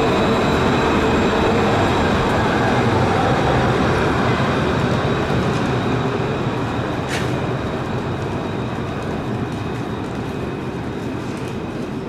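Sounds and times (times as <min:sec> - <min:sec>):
tram rumbling on track: 0:00.0 - 0:12.0.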